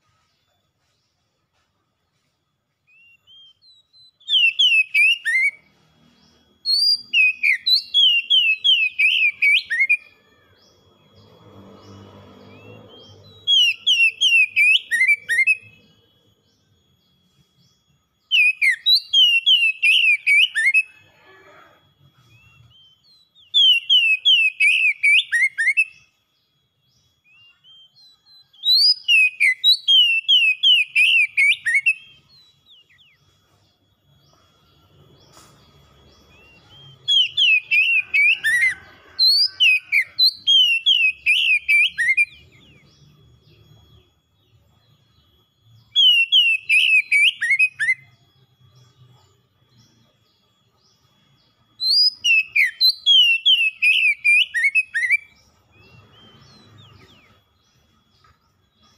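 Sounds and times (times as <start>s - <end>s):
bird singing whistled notes: 0.0s - 58.9s
high bird twittering: 34.1s - 45.1s, 45.8s - 49.0s, 51.7s - 58.9s.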